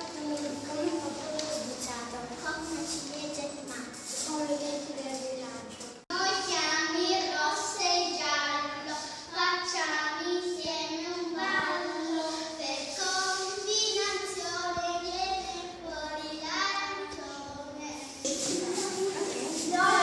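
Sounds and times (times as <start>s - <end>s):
children singing: 18.3s - 20.0s.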